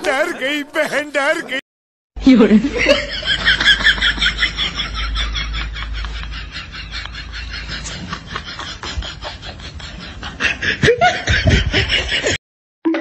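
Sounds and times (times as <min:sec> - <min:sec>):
snickering laughter: 0:02.7 - 0:12.4.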